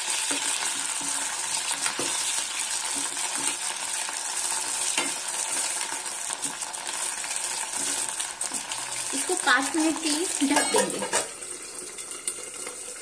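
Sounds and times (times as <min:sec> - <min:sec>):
potatoes sizzling in hot oil: 0:00.0 - 0:13.0
metal spoon scraping a pan: 0:00.1 - 0:12.8.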